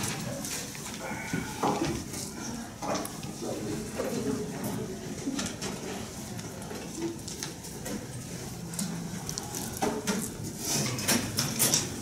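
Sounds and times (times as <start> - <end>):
objects clicking and knocking: 8.8 - 12.0.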